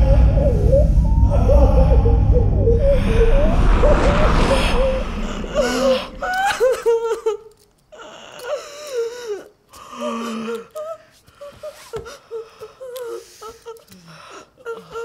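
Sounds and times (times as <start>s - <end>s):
deep low rumble: 0.0s - 7.1s.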